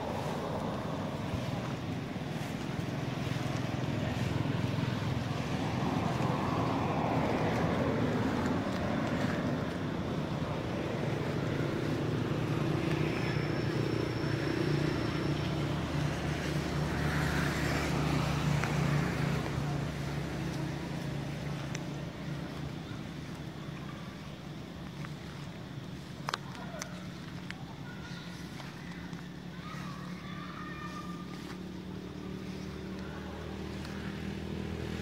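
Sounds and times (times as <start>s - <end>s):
engine humming: 0.0s - 35.0s.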